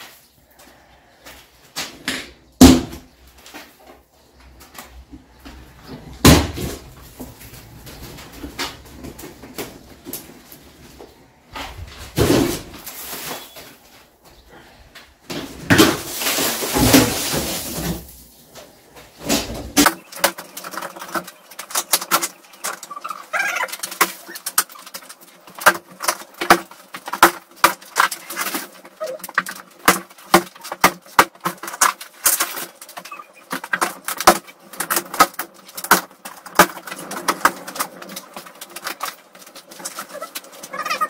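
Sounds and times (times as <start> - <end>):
ceiling panels cracking and snapping: 6.0 - 10.7, 15.3 - 41.0.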